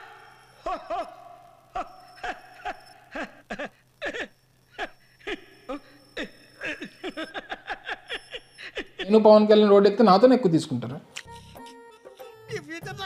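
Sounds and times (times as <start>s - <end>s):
men laughing: 0.0s - 9.2s.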